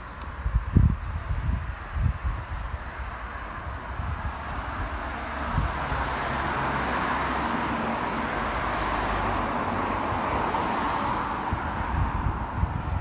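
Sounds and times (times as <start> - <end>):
car driving past: 4.2 - 12.3.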